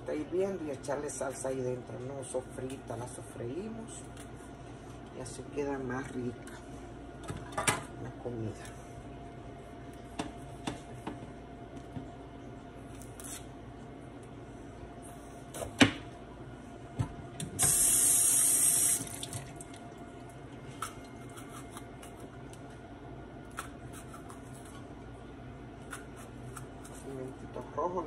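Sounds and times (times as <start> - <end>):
kitchen tap running: 17.6 - 19.8.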